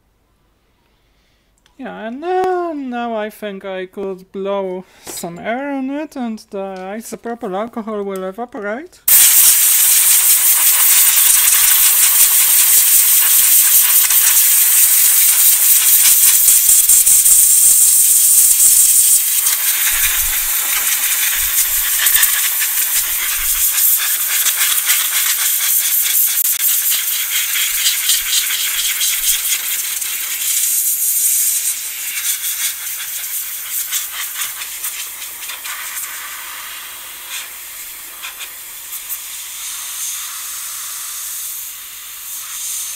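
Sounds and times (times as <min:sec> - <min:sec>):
compressed air blow gun hissing: 0:09.1 - 0:42.9.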